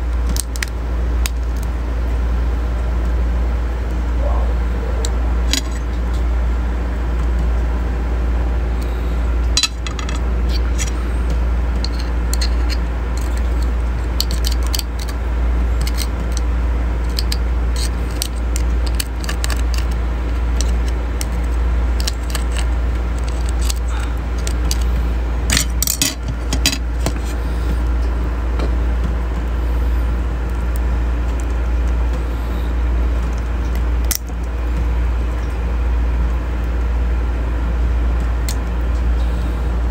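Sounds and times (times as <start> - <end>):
low hum: 0.0 - 39.9
crab shells cracking: 0.2 - 1.7, 11.8 - 27.3, 33.2 - 34.6.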